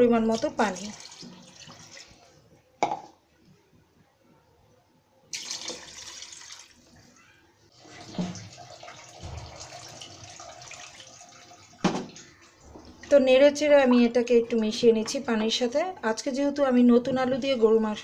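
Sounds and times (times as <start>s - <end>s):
water pouring and splashing into pot: 0.2s - 2.5s, 5.3s - 7.0s, 7.7s - 13.3s
knock: 9.2s - 9.9s.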